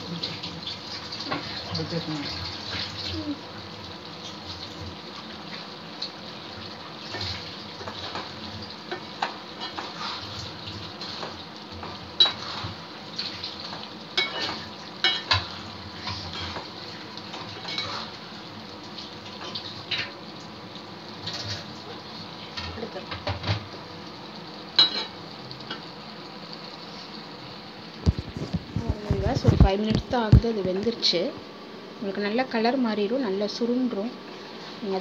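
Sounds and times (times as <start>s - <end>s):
gravy simmering hiss: 0.0s - 35.0s
metal ladle scraping pan: 12.2s - 12.8s, 17.4s - 18.2s.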